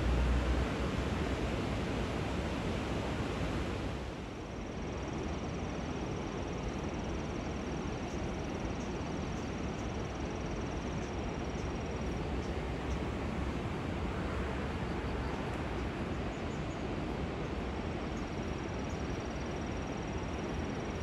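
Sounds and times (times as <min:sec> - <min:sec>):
river rushing through weir: 0:00.0 - 0:04.4, 0:11.7 - 0:21.0.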